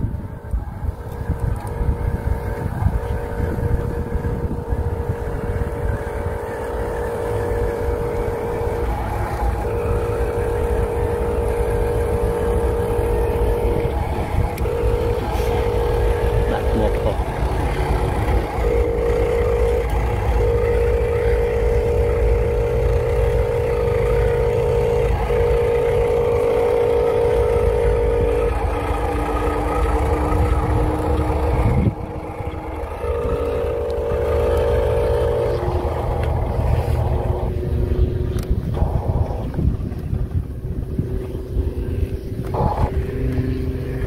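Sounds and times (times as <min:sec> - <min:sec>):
low rumble: 0:00.0 - 0:44.0
low whine: 0:00.0 - 0:44.0
toy truck motor hum: 0:00.0 - 0:44.0.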